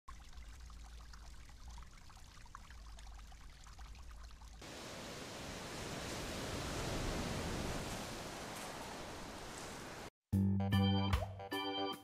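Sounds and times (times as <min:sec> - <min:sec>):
floodwater bubbling and trickling: 0:00.1 - 0:10.1
wind and surf hiss: 0:04.6 - 0:10.1.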